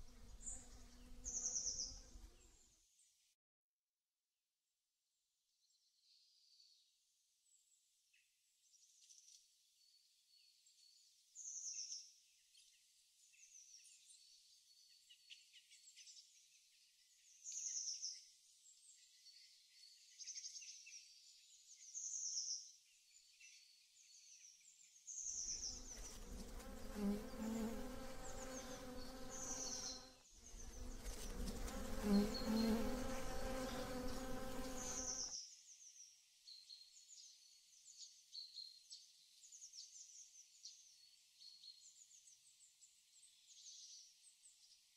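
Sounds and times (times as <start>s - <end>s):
bird chirping: 0.0s - 2.6s, 12.6s - 44.8s
bee buzzing: 25.8s - 35.3s.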